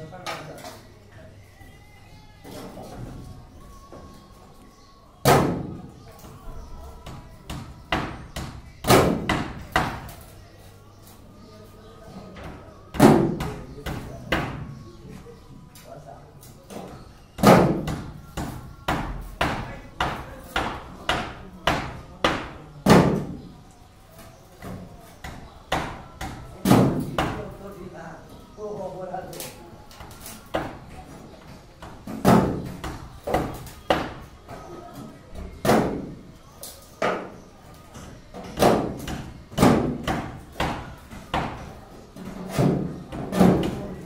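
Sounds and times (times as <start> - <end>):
knocks on wooden formwork: 7.0 - 10.1, 17.4 - 23.4.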